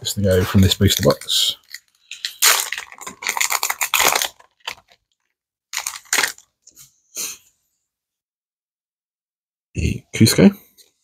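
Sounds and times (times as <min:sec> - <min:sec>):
wrapper tearing and crinkling: 0:00.6 - 0:06.5.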